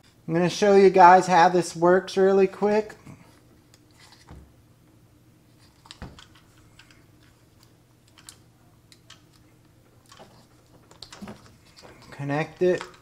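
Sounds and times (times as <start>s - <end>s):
handling noise: 5.5s - 13.0s.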